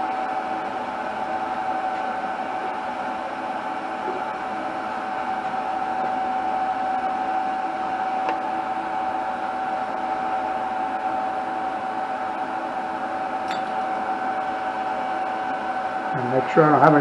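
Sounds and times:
machine hum with held tone: 0:00.0 - 0:17.0.

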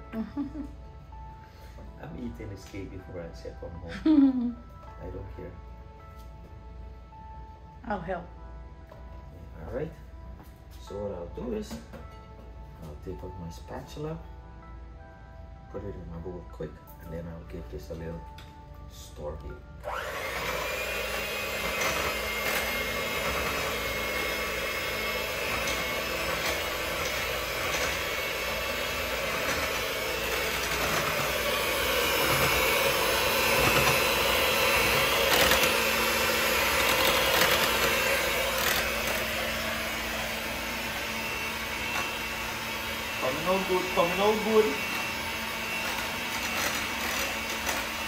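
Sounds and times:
electric hand mixer whisking: 0:19.8 - 0:48.0.

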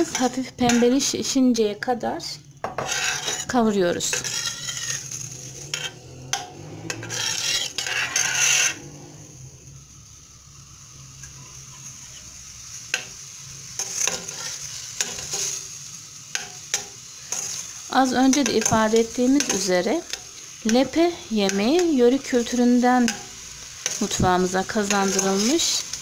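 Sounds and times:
onions sizzling in oil: 0:00.0 - 0:26.0
metal spoon scraping a pot: 0:02.6 - 0:09.2, 0:13.8 - 0:15.6, 0:24.8 - 0:25.8.

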